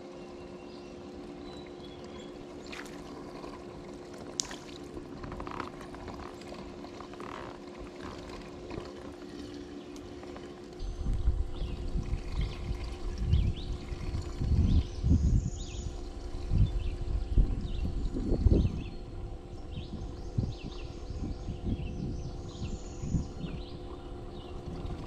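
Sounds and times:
faint steady hum: 0:00.0 - 0:25.0
water trickling and lapping: 0:01.2 - 0:15.2, 0:23.2 - 0:25.0
uneven low rumble: 0:10.3 - 0:25.0.

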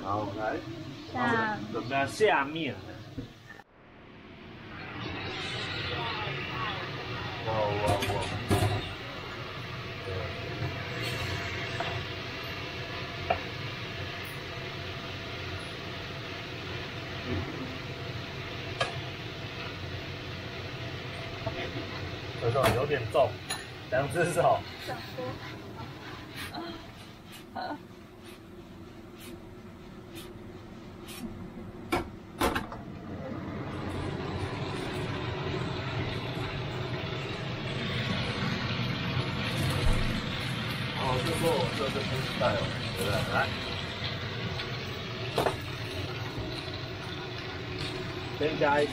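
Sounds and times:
food sizzling in a frying pan: 0:04.6 - 0:26.4, 0:33.4 - 0:48.9.

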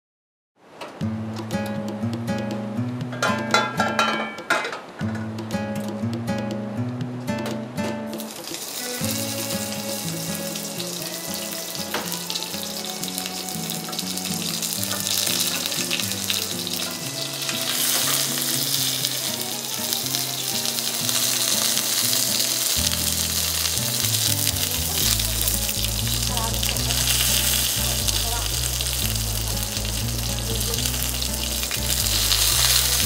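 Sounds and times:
background music: 0:01.0 - 0:33.0
oil sizzling in a frying pan: 0:08.2 - 0:33.0.

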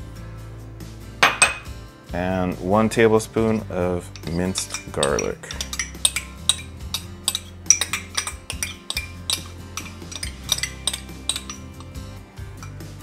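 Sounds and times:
soft background music: 0:00.0 - 0:13.0
metal spoon scraping glass bowl: 0:03.4 - 0:12.9.

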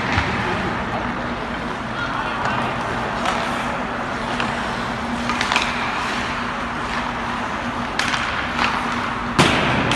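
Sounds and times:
hockey sticks clacking on pucks: 0:00.0 - 0:09.9
steady low hum: 0:00.0 - 0:09.9
skate blades scraping on ice: 0:02.7 - 0:09.4.

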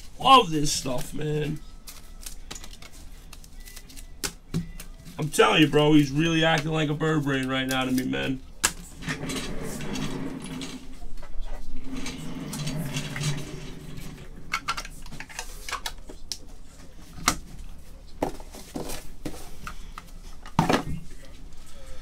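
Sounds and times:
cards and plastic holders handled: 0:00.8 - 0:08.9, 0:14.5 - 0:21.7.

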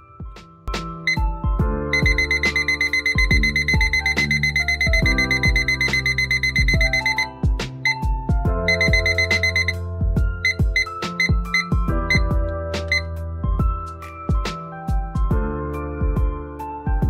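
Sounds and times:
background music with a beat: 0:00.0 - 0:17.0
kitchen timer beeping: 0:01.1 - 0:01.3, 0:01.9 - 0:08.0, 0:08.7 - 0:09.8, 0:10.4 - 0:13.1.

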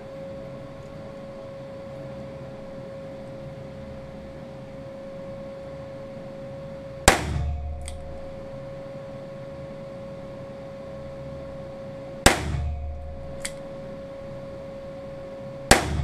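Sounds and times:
steady background hum: 0:00.0 - 0:16.0
gunshot with ring: 0:07.1 - 0:08.3, 0:12.3 - 0:13.6, 0:15.7 - 0:16.0.

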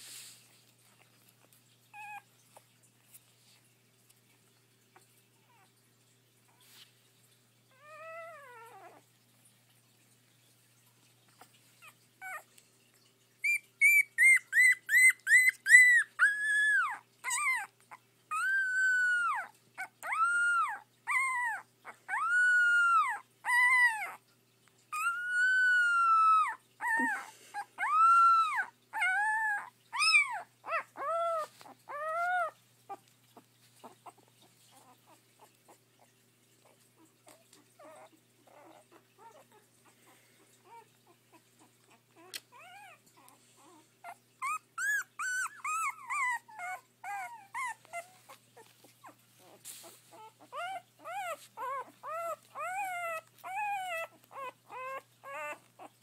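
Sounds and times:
puppy yipping and howling: 0:01.9 - 0:02.7, 0:07.6 - 0:09.1, 0:11.8 - 0:12.5, 0:13.3 - 0:56.0.

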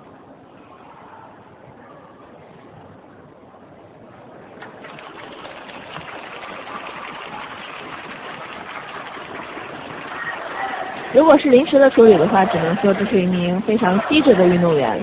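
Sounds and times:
crowd applauding: 0:04.9 - 0:11.1.

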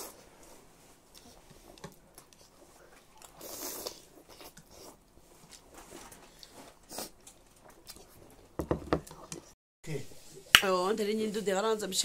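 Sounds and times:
person slurping noodles: 0:03.3 - 0:05.0.

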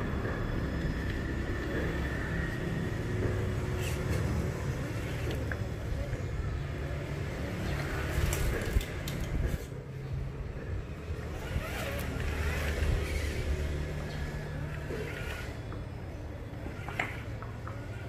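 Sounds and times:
toy truck electric motor: 0:11.2 - 0:15.9, 0:16.6 - 0:18.0.

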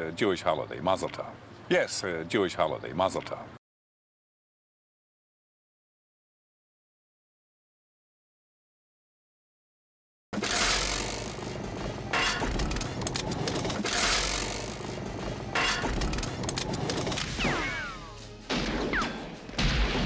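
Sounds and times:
action film music: 0:14.2 - 0:20.0.

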